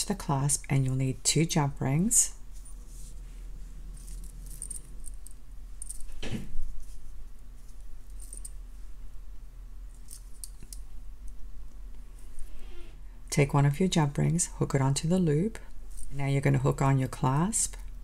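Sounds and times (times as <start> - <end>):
metal jewelry clinking: 3.8 - 7.0, 7.7 - 8.6, 9.9 - 10.9.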